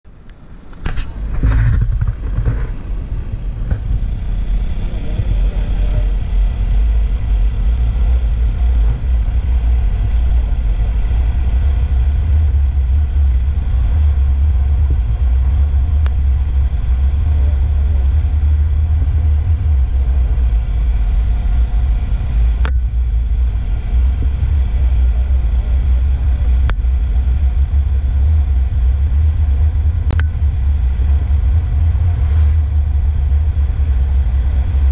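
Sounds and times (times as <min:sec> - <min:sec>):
wind buffeting microphone: 0:00.1 - 0:34.9
scooter engine: 0:00.5 - 0:34.9.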